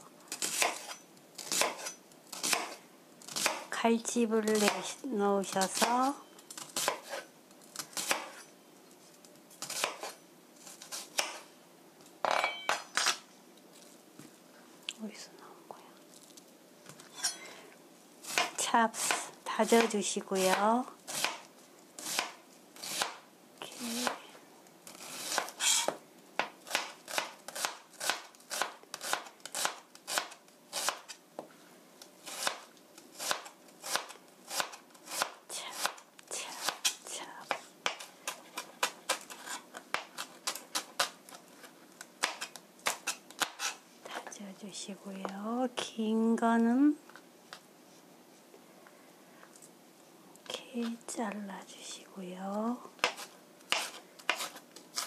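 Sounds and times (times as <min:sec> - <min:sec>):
knife chopping on cutting board: 0:53.0 - 0:55.0.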